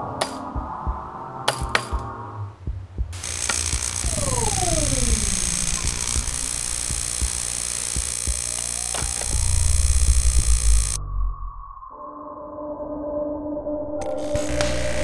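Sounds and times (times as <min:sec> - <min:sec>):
fast low throbbing pulse: 0:02.5 - 0:11.8
scattered clicks: 0:03.2 - 0:11.0
falling electronic tones: 0:03.2 - 0:15.0
steady electronic tone: 0:03.2 - 0:15.0.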